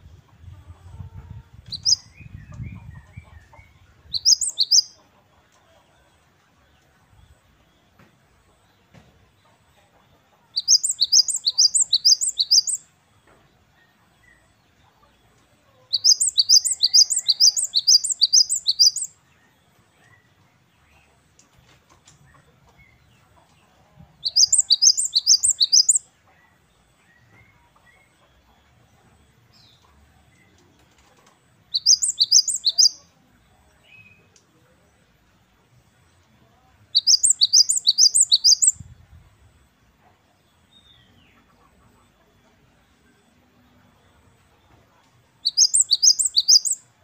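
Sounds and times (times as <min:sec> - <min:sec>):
great tit singing: 0:01.7 - 0:05.0, 0:10.5 - 0:12.9, 0:15.9 - 0:21.0, 0:24.2 - 0:28.5, 0:31.7 - 0:33.1, 0:36.8 - 0:38.9, 0:45.3 - 0:47.0.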